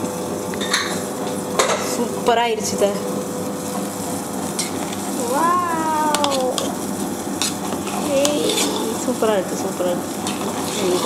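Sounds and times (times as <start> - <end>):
voice-like falling tone: 5.2 - 6.7
ladle mashing rice: 6.0 - 6.8
metal ladle scraping a pot: 8.2 - 9.0.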